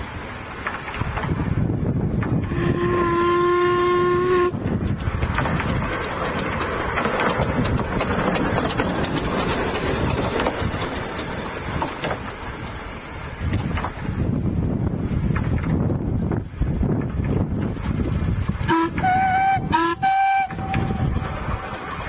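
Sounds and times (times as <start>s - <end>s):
locomotive running past: 0.0s - 22.0s
wind buffeting microphone: 0.0s - 22.0s
steam locomotive whistle: 2.4s - 4.6s, 18.7s - 21.3s.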